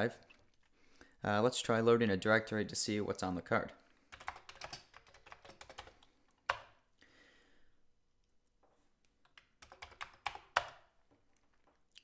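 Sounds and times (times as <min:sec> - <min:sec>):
keyboard keystrokes: 0:09.2 - 0:10.9.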